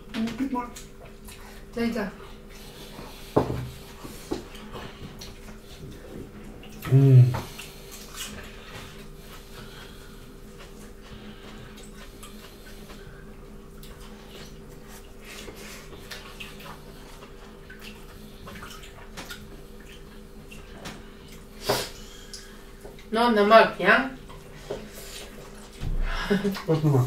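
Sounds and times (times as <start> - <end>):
faint steady hum: 0.0 - 27.0
wet chewing and lip smacking: 0.7 - 1.7, 3.8 - 23.1.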